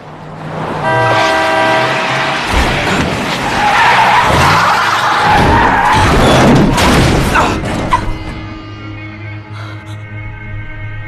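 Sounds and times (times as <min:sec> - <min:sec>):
tires screeching: 0:00.0 - 0:08.3.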